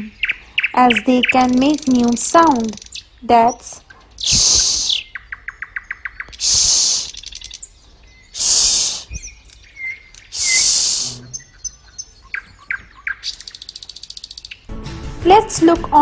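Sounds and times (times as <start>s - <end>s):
bird-like chirping ticks: 0.0s - 14.7s
person hushing: 8.4s - 9.1s.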